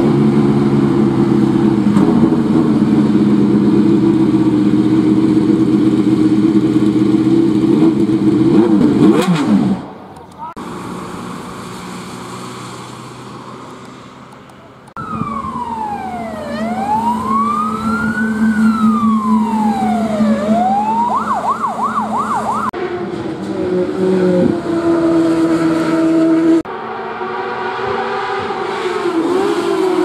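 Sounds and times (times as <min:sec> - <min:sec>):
engine hum: 0:00.0 - 0:30.0
fire engine siren wailing and yelping: 0:14.9 - 0:26.4.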